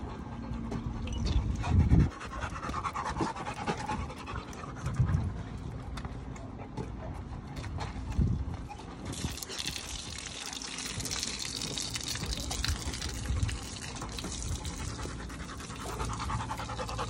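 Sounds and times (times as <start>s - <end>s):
dogs panting: 0.0s - 9.8s, 10.4s - 17.0s.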